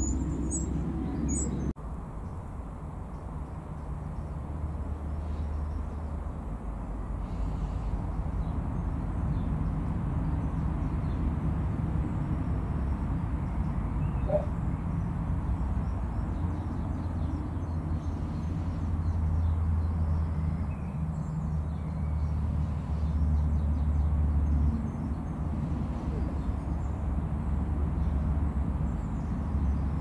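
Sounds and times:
faint bird calls: 14.0s - 14.6s.

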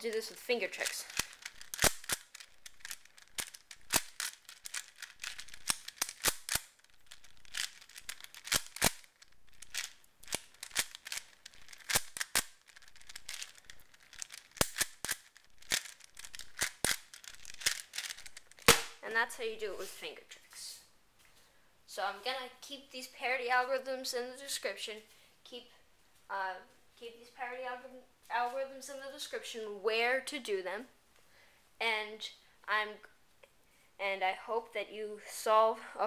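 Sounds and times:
puzzle cube plastic clicks: 0.0s - 19.0s.

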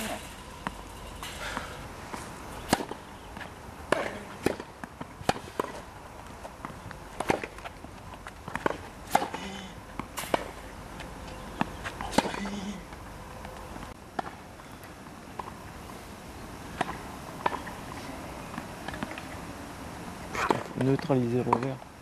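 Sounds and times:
tennis ball hits: 0.6s - 5.8s, 6.6s - 7.7s, 8.5s - 9.4s, 11.6s - 12.4s.

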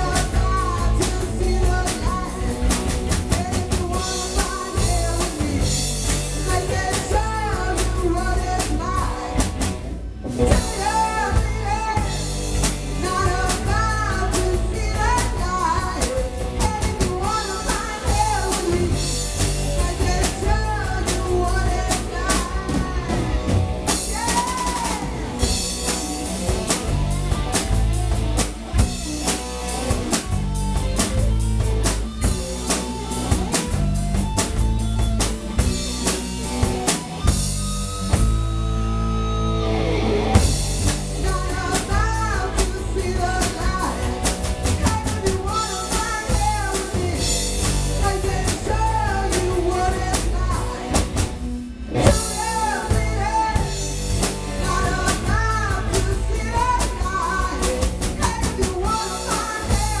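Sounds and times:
person singing: 0.0s - 9.6s, 10.4s - 26.5s, 41.2s - 51.2s, 52.0s - 60.0s
drum kit: 0.0s - 60.0s
electric bass: 0.0s - 60.0s
electric guitar: 0.0s - 60.0s.

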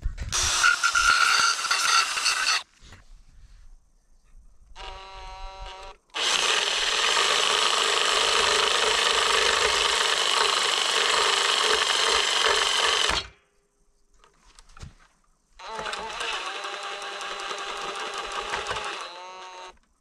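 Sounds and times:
power tool cutting wood: 0.4s - 2.6s, 4.8s - 13.3s, 15.6s - 19.8s.

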